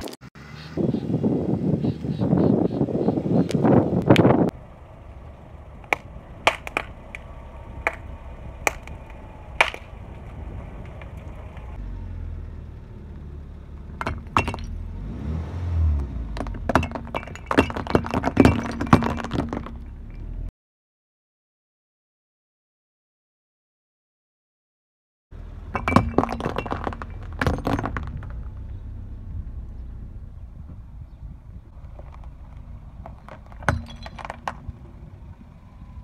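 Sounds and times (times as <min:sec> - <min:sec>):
car rumbling forward: 0:00.3 - 0:20.5, 0:25.3 - 0:36.0
tyre crushing clay packets: 0:05.8 - 0:10.2, 0:16.3 - 0:19.9, 0:25.8 - 0:28.7, 0:31.7 - 0:34.8
clay bowls shattering: 0:16.7 - 0:19.9, 0:25.8 - 0:28.4.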